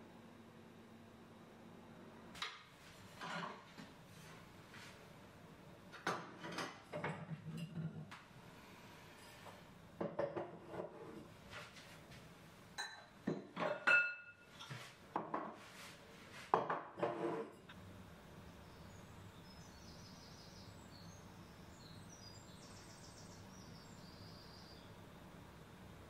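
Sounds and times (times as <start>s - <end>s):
crockery and glass jars clinking: 12.8s - 15.5s
faint bird chirps: 18.5s - 25.0s.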